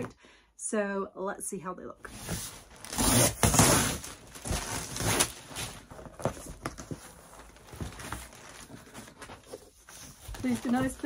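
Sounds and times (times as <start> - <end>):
packing tape ripping off cardboard: 2.2 - 6.8
cardboard knocks and scrapes: 2.2 - 11.0.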